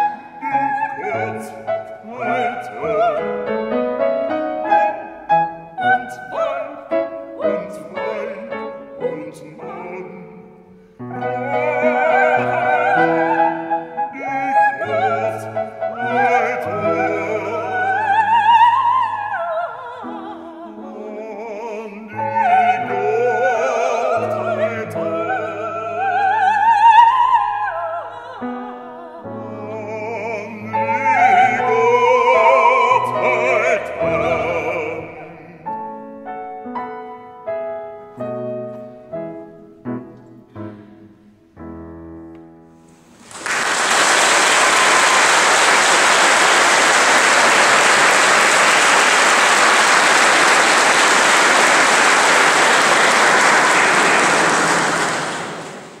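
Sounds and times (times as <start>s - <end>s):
soprano singing with vibrato: 0.0s - 36.0s
audience applause: 43.2s - 56.0s.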